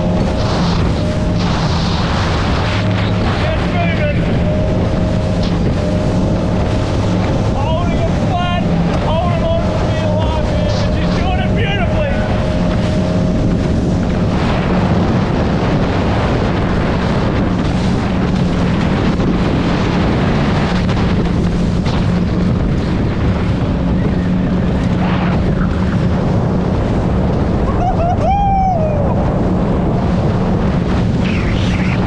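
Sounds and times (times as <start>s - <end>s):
outboard motor running: 0.0s - 32.0s
water rushing against hull: 0.0s - 32.0s
wind on microphone: 0.0s - 32.0s.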